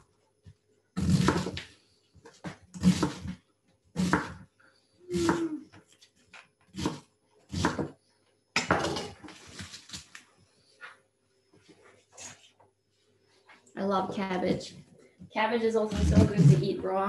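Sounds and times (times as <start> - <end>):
knife cutting cabbage on board: 1.0 - 1.6, 2.8 - 3.4, 4.0 - 4.4, 6.7 - 7.9.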